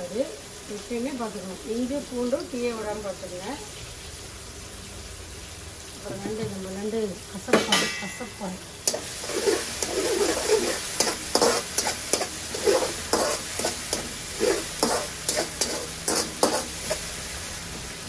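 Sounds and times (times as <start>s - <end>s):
vegetables sizzling in oil: 0.0s - 18.0s
spatula scraping wok: 7.9s - 17.9s.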